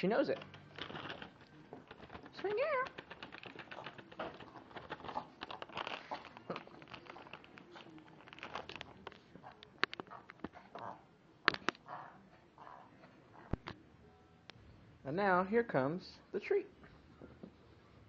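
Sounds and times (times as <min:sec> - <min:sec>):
sharp clicks and crinkles: 0:00.3 - 0:11.8.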